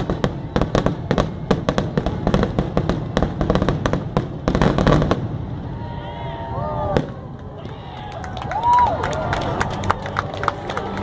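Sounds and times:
fireworks bangs and crackles: 0.0s - 7.8s.

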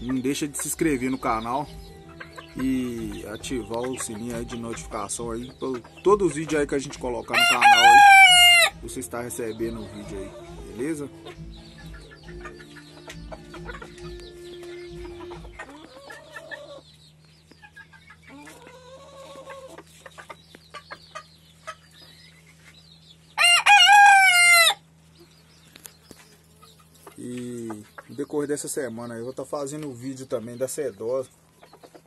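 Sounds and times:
steady low hum: 0.0s - 23.4s
chickens calling: 0.0s - 32.0s
rooster crowing: 7.3s - 8.8s, 23.4s - 24.8s.

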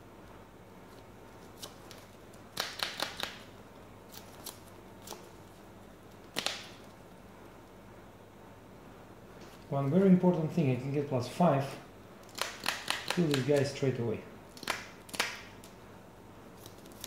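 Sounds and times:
playing cards snapping: 1.6s - 3.5s, 6.2s - 6.9s, 12.2s - 13.7s, 14.5s - 15.8s.

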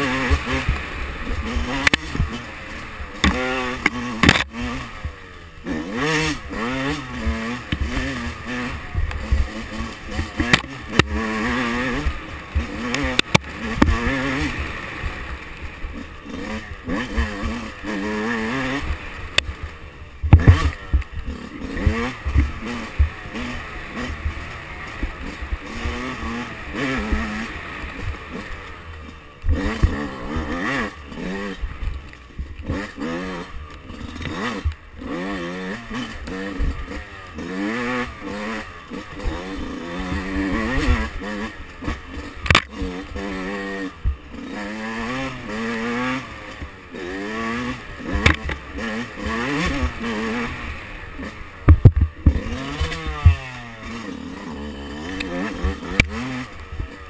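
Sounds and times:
two-stroke motorcycle engine revving: 0.0s - 57.0s
sharp knocks and clatter: 51.6s - 54.0s.

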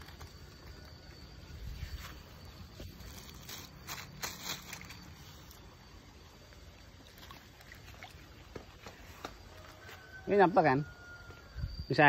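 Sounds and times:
plastic bag rustling: 1.8s - 5.5s.

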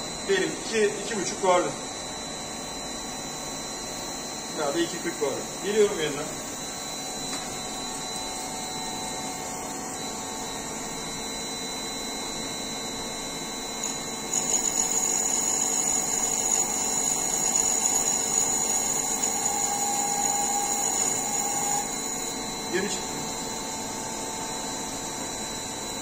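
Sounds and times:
high steady whine: 0.0s - 26.0s
lathe spindle turning: 13.8s - 22.0s
boring tool cutting metal: 13.8s - 22.2s.

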